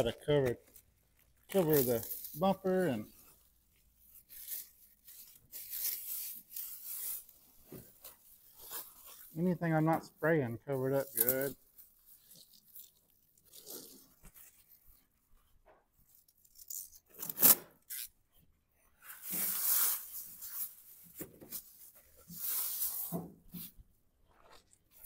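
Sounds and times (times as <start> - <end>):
masking film ripping: 0.0 - 9.4, 11.0 - 14.8, 16.2 - 18.2
plastic sheeting crinkling: 0.0 - 15.4, 19.0 - 25.0.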